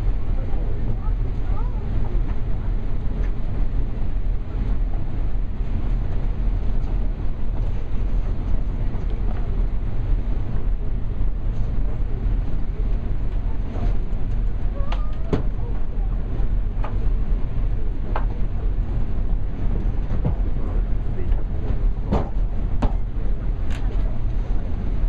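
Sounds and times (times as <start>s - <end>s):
ferry engine rumble: 0.0s - 25.0s.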